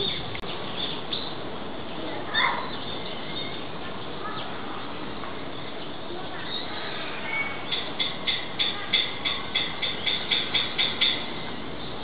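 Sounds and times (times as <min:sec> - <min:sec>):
background hubbub: 0:00.0 - 0:12.0
bird-like chirps: 0:05.6 - 0:12.0.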